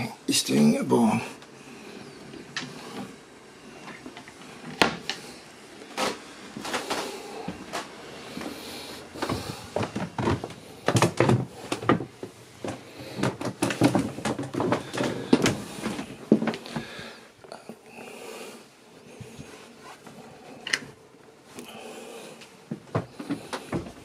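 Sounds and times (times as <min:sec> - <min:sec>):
footsteps on wooden floor: 0:09.2 - 0:17.0, 0:22.7 - 0:24.0.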